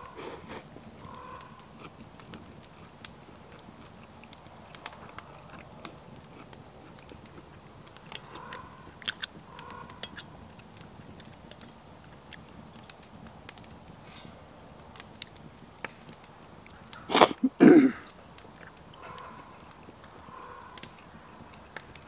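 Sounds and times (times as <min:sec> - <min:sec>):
man chewing noodles: 0:00.0 - 0:12.6.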